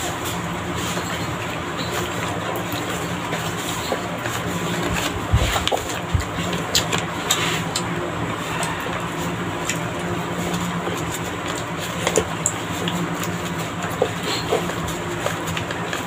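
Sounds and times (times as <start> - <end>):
low mechanical hum: 0.0 - 16.0
eating by hand clicks and smacks: 0.2 - 16.0.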